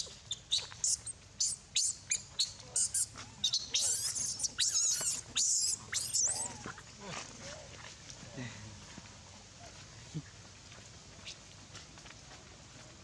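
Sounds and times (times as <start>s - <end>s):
baby monkey squealing: 0.0s - 6.7s.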